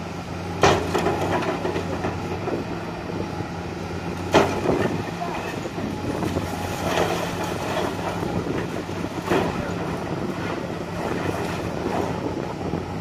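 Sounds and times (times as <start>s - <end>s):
excavator diesel engine running: 0.0s - 13.0s
rubble crunching and clattering: 0.6s - 2.7s, 4.2s - 12.3s.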